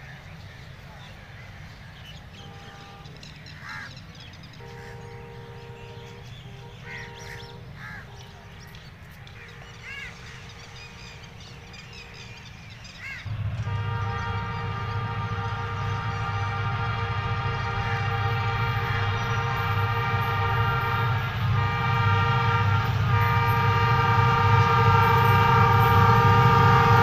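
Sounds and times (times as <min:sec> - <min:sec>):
locomotive engine rumble: 0:00.0 - 0:27.0
locomotive horn: 0:02.3 - 0:03.4, 0:04.5 - 0:12.3, 0:13.2 - 0:27.0
crows cawing: 0:03.6 - 0:04.0, 0:06.9 - 0:08.2, 0:13.0 - 0:13.3.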